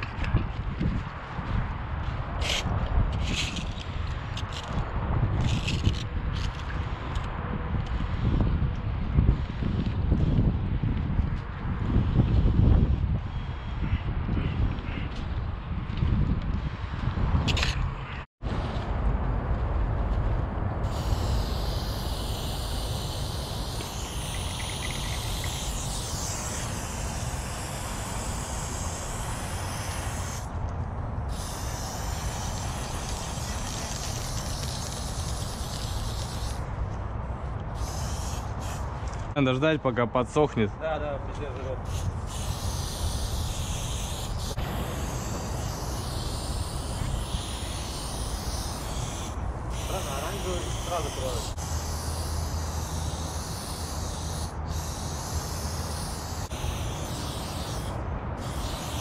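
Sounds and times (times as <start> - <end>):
steady low rumble: 0.0 - 37.8
spray paint can hissing: 5.4 - 7.2, 20.8 - 30.6, 31.3 - 36.8, 37.7 - 39.2, 41.8 - 59.0.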